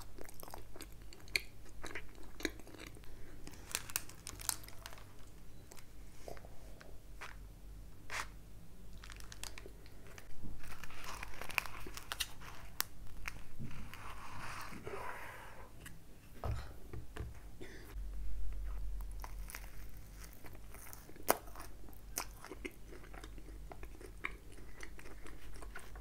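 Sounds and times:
paper sleeve crinkling: 3.5 - 5.3, 9.0 - 14.8
bread roll tearing: 10.2 - 14.6, 19.2 - 22.4.

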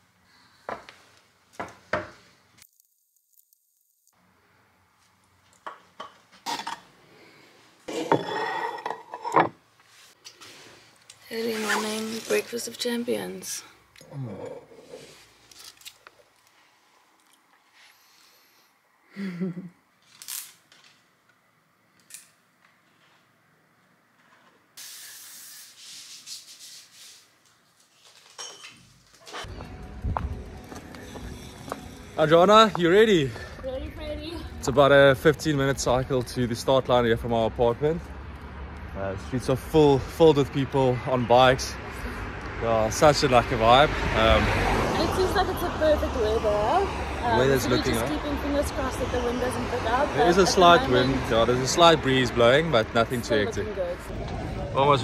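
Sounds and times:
aerosol spray hissing: 24.8 - 26.5.

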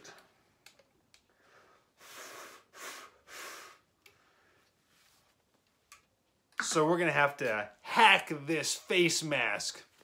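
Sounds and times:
breath blown across a flute: 2.0 - 3.9.

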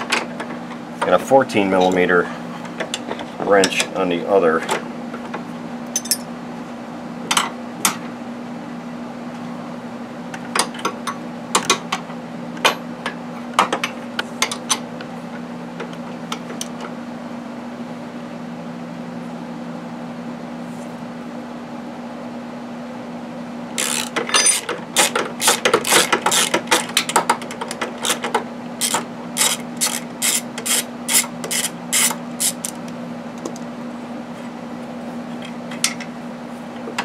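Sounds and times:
steady low hum: 0.0 - 37.0
ratchet and wrench clicking: 23.8 - 26.9, 28.0 - 32.8.

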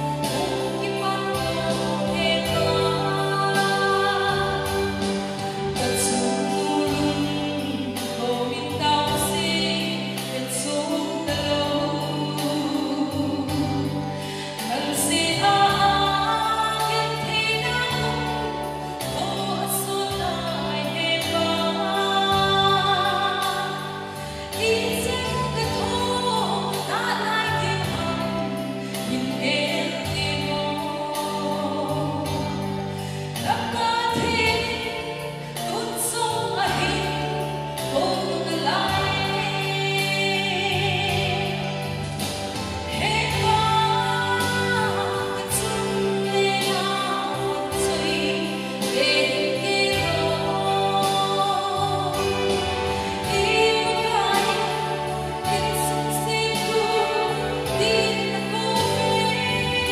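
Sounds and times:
instrumental accompaniment with bass: 0.0 - 59.9
woman singing into microphone: 0.0 - 59.9.

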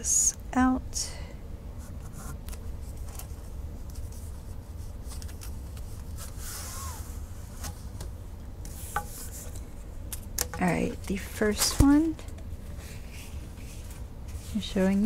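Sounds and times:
steady low hum: 0.0 - 15.0
canvas rustling slide: 5.8 - 8.0.

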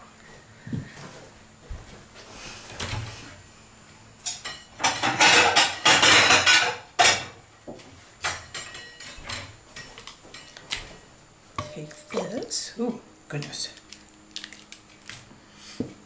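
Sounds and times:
cutlery and dishes clattering: 4.3 - 7.4, 8.2 - 10.6.

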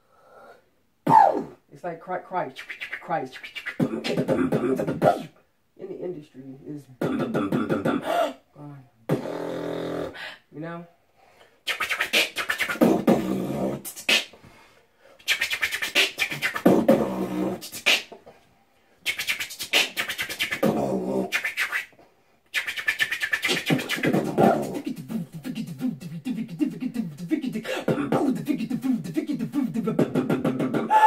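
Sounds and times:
people beatboxing: 2.6 - 5.3, 7.0 - 8.1, 9.1 - 10.1, 11.7 - 14.4, 15.2 - 18.2, 19.0 - 31.0.

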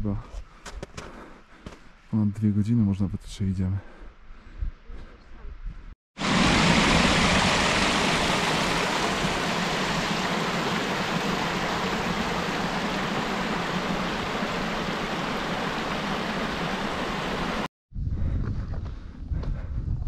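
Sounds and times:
steady rushing noise: 6.2 - 17.7.

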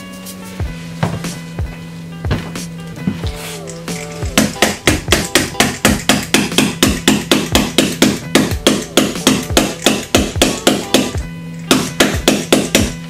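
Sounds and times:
small hammer tapping: 4.3 - 13.0.

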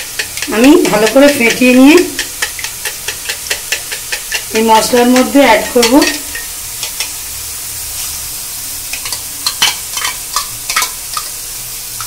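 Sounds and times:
spoon clicking and scraping: 0.0 - 7.2, 8.9 - 11.4
masala sizzling in oil: 0.0 - 12.0.

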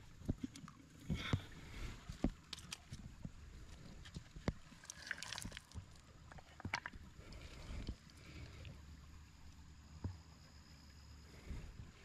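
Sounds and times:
low steady rumble: 0.0 - 12.0
stones and gravel clicking: 4.4 - 7.0.

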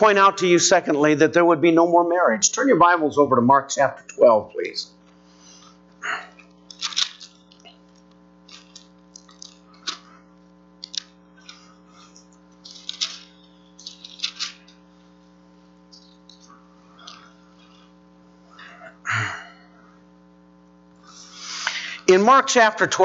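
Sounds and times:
steady electrical hum: 0.0 - 23.0
pages rustling and flipping: 6.6 - 10.1, 10.8 - 15.2.

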